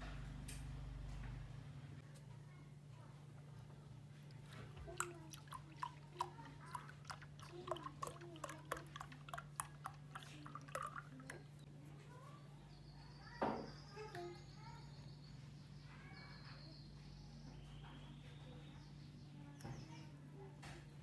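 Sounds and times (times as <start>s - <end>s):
milk pouring into a glass: 4.2s - 11.6s.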